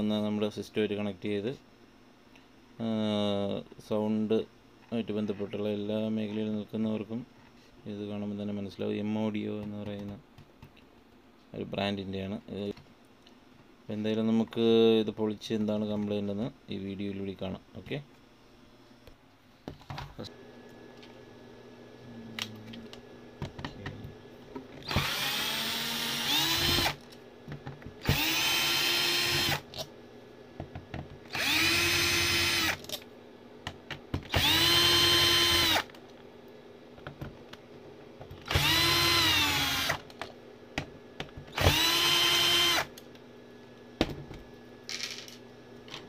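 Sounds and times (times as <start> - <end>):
drill bit clicks: 24.8 - 27.0, 28.0 - 29.8, 31.3 - 33.0, 34.3 - 35.9, 38.4 - 40.1, 41.5 - 43.0
electric drill whine: 24.8 - 27.0, 28.0 - 29.8, 31.3 - 32.9, 34.3 - 35.9, 38.4 - 40.0, 41.5 - 43.0.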